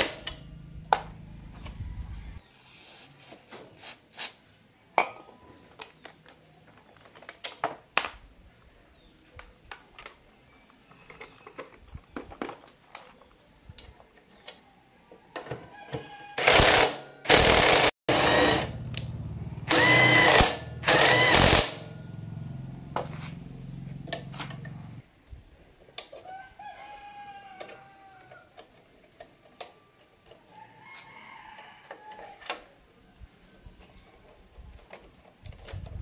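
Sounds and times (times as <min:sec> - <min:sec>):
rooster crowing: 0:15.6 - 0:17.4, 0:26.2 - 0:28.6, 0:30.5 - 0:32.7
impact driver hammering: 0:19.7 - 0:22.0.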